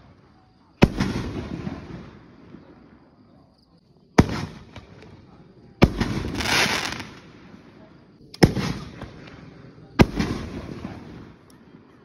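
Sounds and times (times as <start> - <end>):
faint firework crackles: 0.0 - 12.0
firework fired from mortar tube: 0.8 - 2.2, 4.2 - 5.0, 5.8 - 7.3, 8.4 - 9.4, 10.0 - 11.4.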